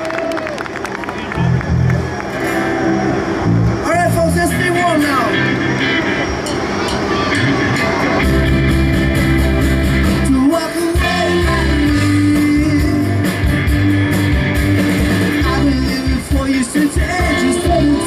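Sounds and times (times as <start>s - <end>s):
bass: 0.0s - 18.0s
drums: 1.7s - 18.0s
man singing lead: 10.1s - 13.5s, 15.3s - 18.0s.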